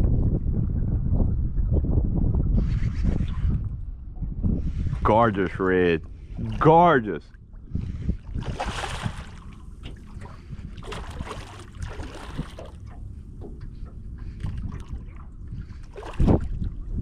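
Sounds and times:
wind buffeting microphone: 0.0s - 17.0s
fish splashing at water surface: 10.8s - 12.8s.

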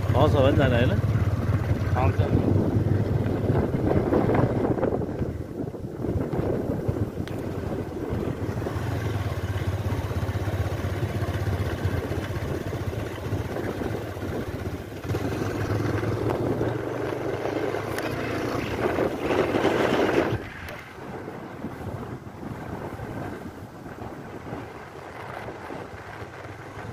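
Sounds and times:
motorcycle engine at low speed: 0.0s - 26.9s
wind rushing over microphone: 0.0s - 26.9s.

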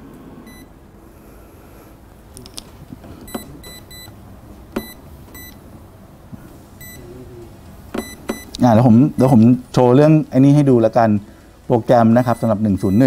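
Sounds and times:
short electronic beeps: 6.8s - 7.0s.

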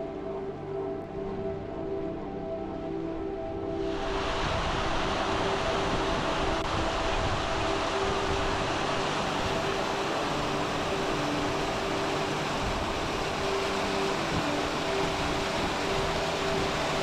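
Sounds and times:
faint sustained music notes: 0.0s - 17.0s
stream rushing over rocks: 3.8s - 17.0s.

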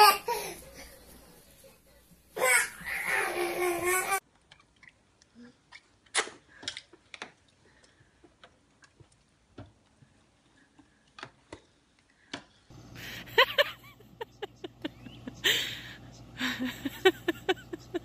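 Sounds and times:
steady hum: 12.7s - 18.0s.

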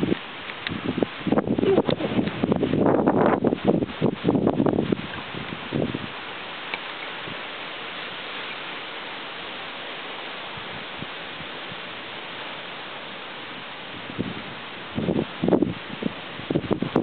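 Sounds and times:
heavy rain and wind: 0.0s - 17.0s.

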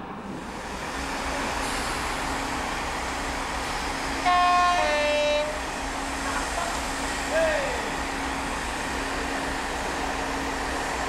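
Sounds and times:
oncoming train noise: 0.0s - 11.0s
two-tone train horn: 4.2s - 5.7s.

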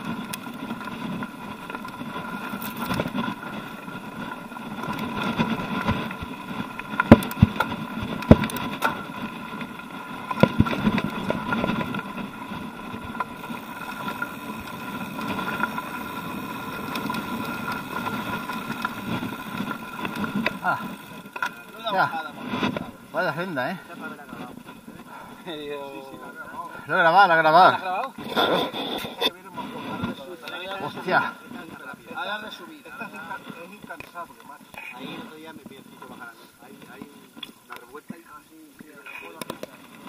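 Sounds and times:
bike knocking over rocks: 0.0s - 25.0s
bike frame rattling: 0.0s - 28.6s
bike tyres crunching on stones: 0.0s - 40.0s.

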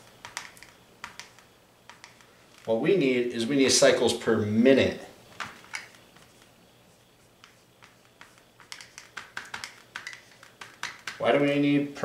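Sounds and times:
marker ticking on whiteboard: 0.1s - 2.3s, 7.4s - 11.3s.

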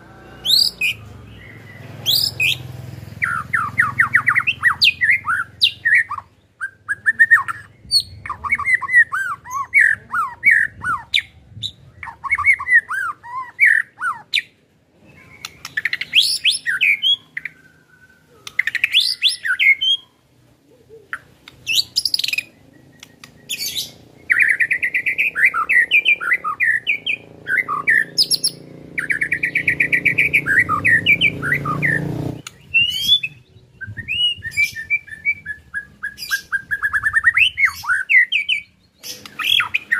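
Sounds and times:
bird singing whistled phrases: 0.3s - 2.6s, 15.1s - 20.2s, 21.6s - 39.9s
fast rattling bird notes: 1.6s - 5.8s.

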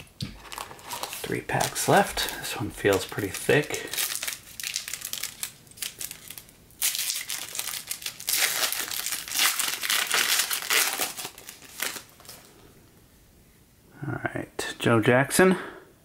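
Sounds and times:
wrapper tearing and crinkling: 0.4s - 12.5s.

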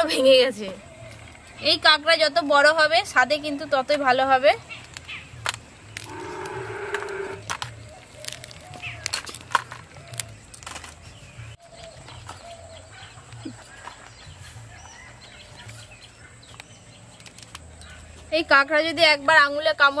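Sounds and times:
animal drawn-out call: 6.0s - 7.5s.

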